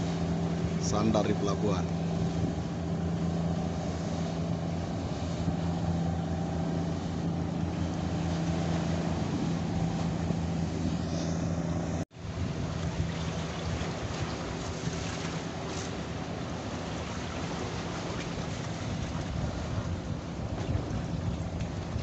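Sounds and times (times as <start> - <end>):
boat engine running: 0.0 - 22.0
water noise: 0.0 - 22.0
rushing wind: 1.9 - 22.0.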